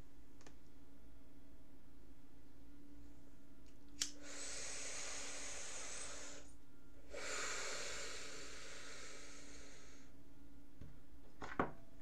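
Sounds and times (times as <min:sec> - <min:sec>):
person sniffing through nose: 0:04.2 - 0:06.5, 0:07.1 - 0:10.0.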